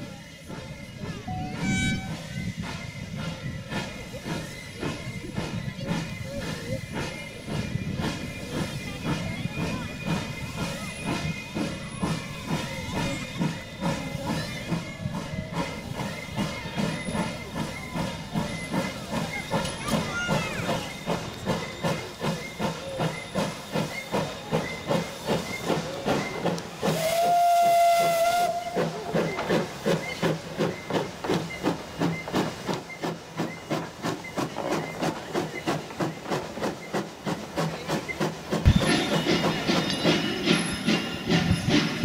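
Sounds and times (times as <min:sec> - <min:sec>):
steam hissing: 0:00.0 - 0:42.0
steam locomotive chuffing: 0:00.0 - 0:42.0
steam whistle: 0:01.2 - 0:02.4, 0:26.9 - 0:29.2.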